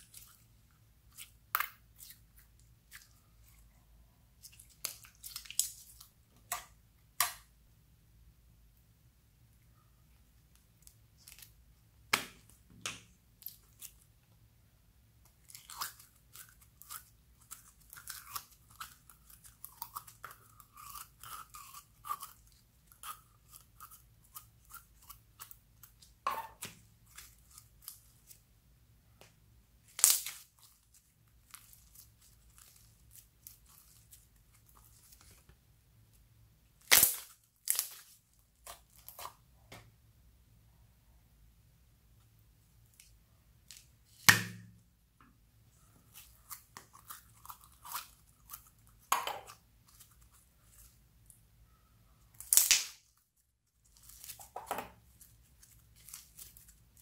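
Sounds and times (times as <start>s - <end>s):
slime crackling and squelching: 0.0s - 7.5s, 29.8s - 35.5s, 36.8s - 39.5s, 52.3s - 57.0s.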